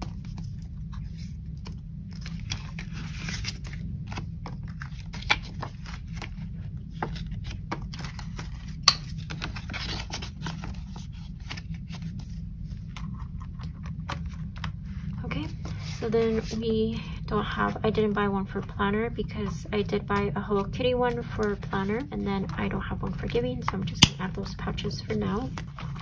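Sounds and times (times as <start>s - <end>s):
paper and plastic rustling: 0.0s - 17.0s, 24.5s - 26.0s
steady low hum: 0.0s - 26.0s.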